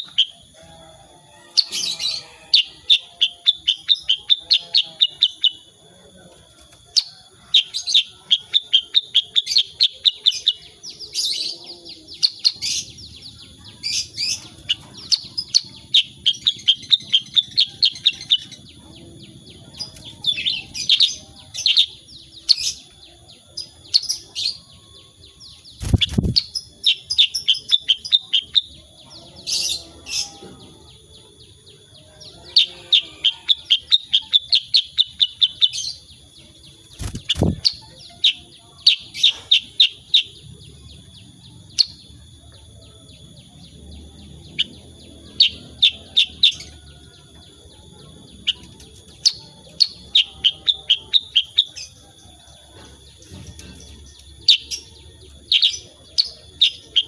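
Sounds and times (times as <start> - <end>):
bird chirping phrases: 0.0 - 57.0.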